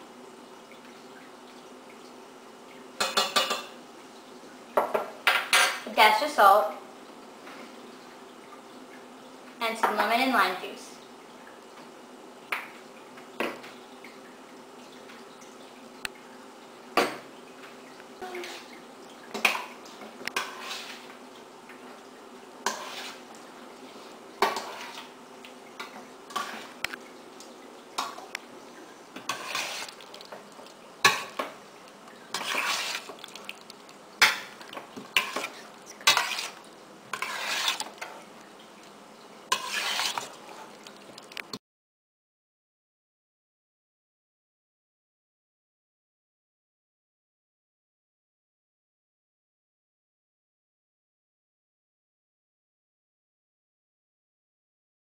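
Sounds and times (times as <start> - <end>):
metal spoon scraping a pot: 20.4 - 21.0, 22.7 - 23.2, 29.3 - 30.1, 32.3 - 33.2, 35.1 - 38.2, 39.5 - 40.6.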